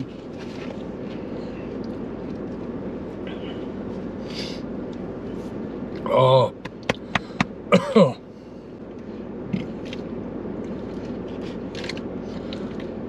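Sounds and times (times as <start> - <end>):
car cabin hum: 0.0 - 13.0
man vocal sound: 6.0 - 6.7.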